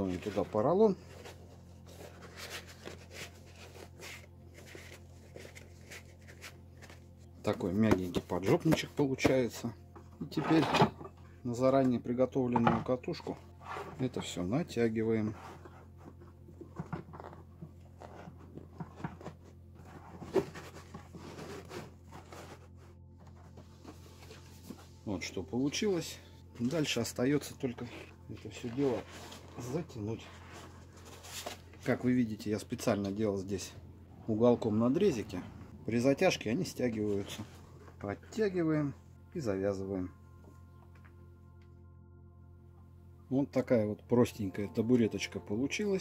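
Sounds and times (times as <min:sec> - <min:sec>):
foam pad rustling and rubbing: 0:00.0 - 0:07.1, 0:17.9 - 0:26.0, 0:26.6 - 0:33.7
faint low hum: 0:00.0 - 0:46.0.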